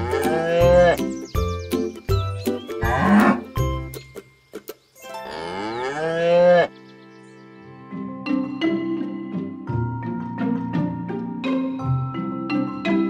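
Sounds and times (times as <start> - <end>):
cow mooing: 0.0 - 1.0, 2.8 - 3.4, 5.2 - 6.7
background music: 0.0 - 13.0.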